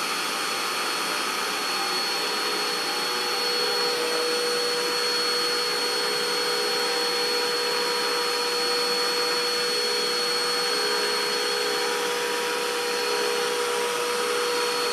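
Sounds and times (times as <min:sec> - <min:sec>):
vacuum cleaner running: 0:00.0 - 0:14.9.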